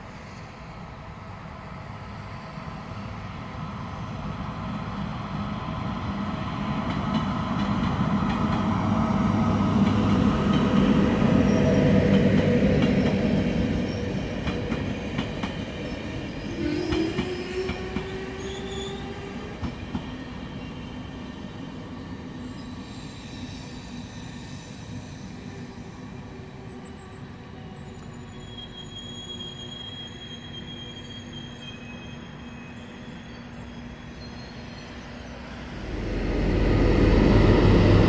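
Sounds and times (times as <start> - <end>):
wheel squeal: 27.7 - 35.3
locomotive passing with hum: 35.0 - 38.0.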